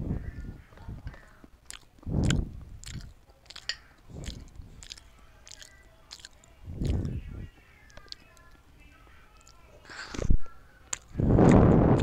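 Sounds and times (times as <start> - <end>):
chewing clicks and crunches: 0.7 - 8.6, 9.3 - 12.0
wet mouth smacks: 1.7 - 7.1.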